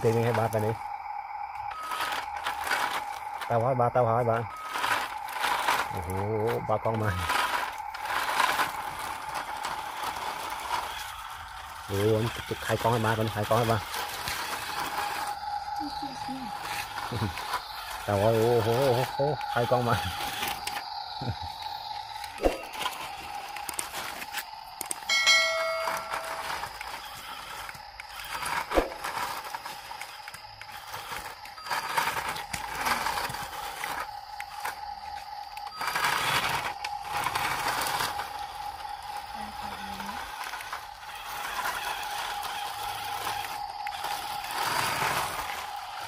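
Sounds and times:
toy motor and gears whining: 0:00.0 - 0:46.0
tyres on dirt: 0:00.0 - 0:46.0
brief ringing tone: 0:25.1 - 0:26.7.

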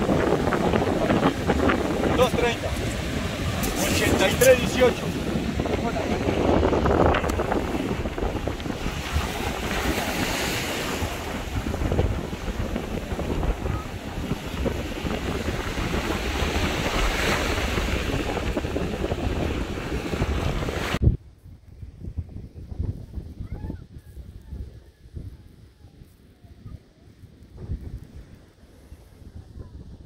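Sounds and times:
surf breaking on beach: 0:00.0 - 0:21.0
wind buffeting microphone: 0:00.0 - 0:30.0.

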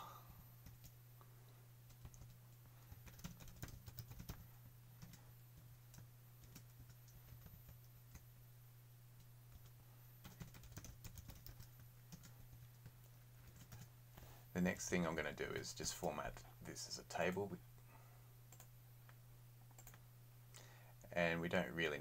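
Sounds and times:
low steady hum: 0:00.0 - 0:22.0
typing on computer keyboard: 0:00.6 - 0:00.9, 0:01.9 - 0:04.4, 0:05.0 - 0:08.2, 0:09.5 - 0:13.9, 0:19.7 - 0:20.0.

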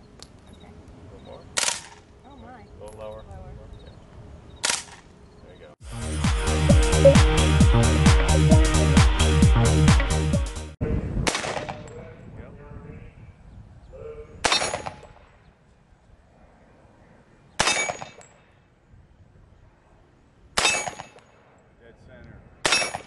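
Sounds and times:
electronic music: 0:06.2 - 0:10.6.

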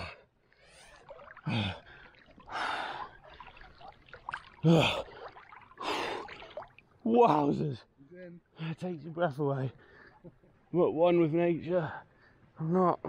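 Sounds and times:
water sloshing: 0:00.4 - 0:07.1
man gasping and huffing: 0:04.6 - 0:05.2.

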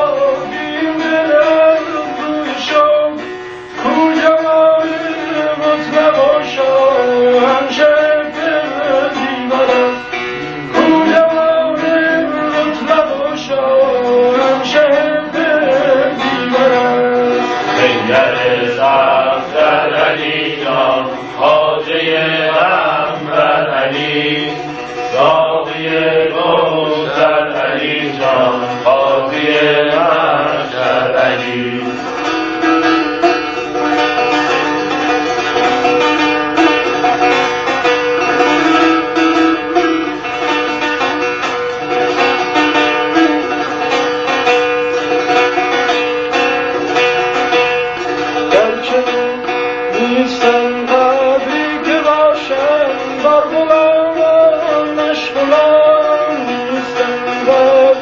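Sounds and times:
long-necked lute playing: 0:00.0 - 0:58.0.

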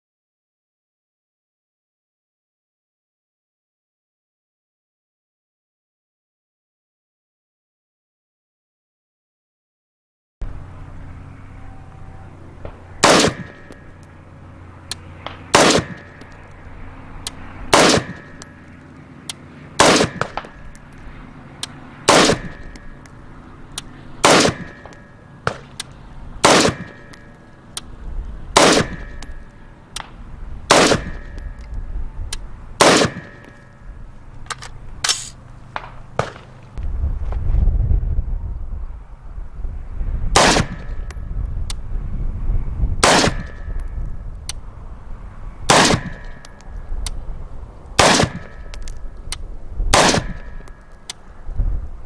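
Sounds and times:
rifle shots: 0:12.7 - 0:13.8, 0:15.2 - 0:16.2, 0:17.7 - 0:18.4, 0:19.8 - 0:20.8, 0:22.0 - 0:22.9, 0:24.2 - 0:25.8, 0:26.4 - 0:27.2, 0:28.5 - 0:29.4, 0:30.0 - 0:31.4, 0:32.8 - 0:33.6, 0:40.4 - 0:40.9, 0:43.0 - 0:43.7, 0:45.7 - 0:46.4, 0:48.0 - 0:48.9, 0:49.9 - 0:50.8
low rumble: 0:36.7 - 0:47.8.

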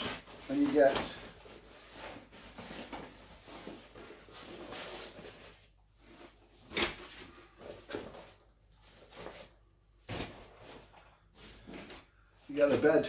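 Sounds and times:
canvas bag rustling: 0:00.0 - 0:06.4.

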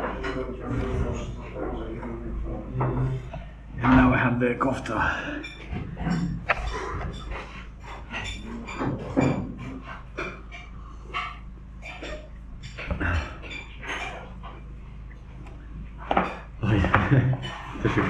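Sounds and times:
low room hum: 0:00.0 - 0:18.0
cutlery and dishes clinking: 0:05.4 - 0:14.5.

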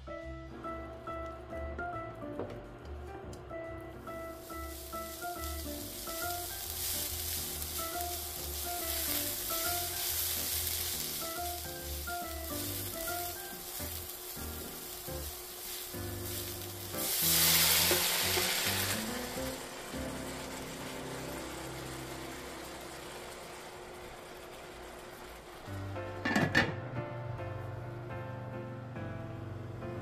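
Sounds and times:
radish sizzling in oil: 0:04.1 - 0:24.5
water hissing in hot pan: 0:04.2 - 0:23.9
wooden spatula stirring: 0:04.5 - 0:11.7.

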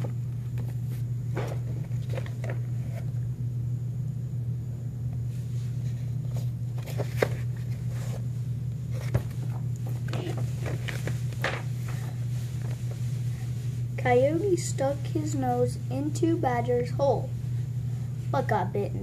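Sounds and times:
picture book rustling and knocking: 0:00.0 - 0:03.1, 0:06.3 - 0:08.2, 0:08.9 - 0:13.0
steady low hum: 0:00.0 - 0:19.0.

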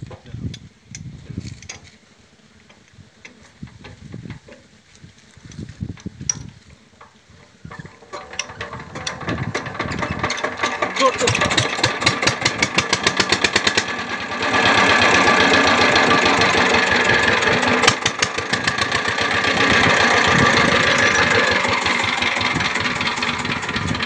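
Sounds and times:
diesel engine chugging: 0:07.7 - 0:24.0.

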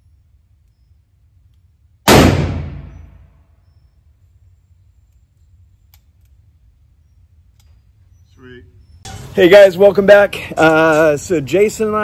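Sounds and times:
revolver gunshot echoing: 0:02.0 - 0:03.4
faint clicks: 0:05.0 - 0:06.4.

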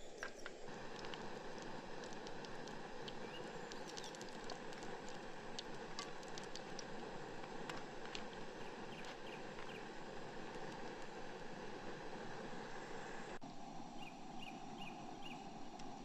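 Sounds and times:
food frying in hot oil: 0:00.6 - 0:13.4
oil popping and crackling: 0:00.7 - 0:12.4.

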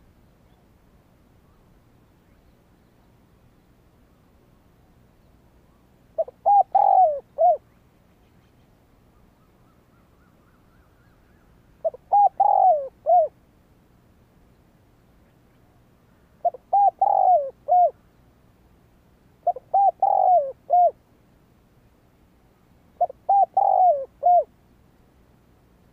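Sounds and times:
dove cooing: 0:06.2 - 0:07.7, 0:11.8 - 0:13.4, 0:16.4 - 0:18.0, 0:19.4 - 0:21.0, 0:23.0 - 0:24.5.

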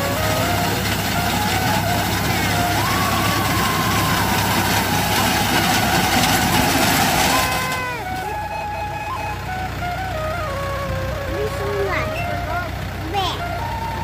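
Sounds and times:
reaper mechanical clatter: 0:00.0 - 0:09.2
background music with melody: 0:00.0 - 0:14.0
tractor engine running: 0:00.0 - 0:14.0.

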